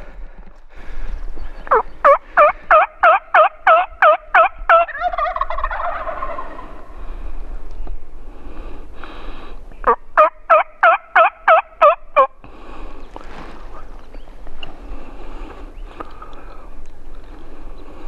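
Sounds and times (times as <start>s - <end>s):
turkey yelps: 1.7s - 6.7s, 9.8s - 12.3s.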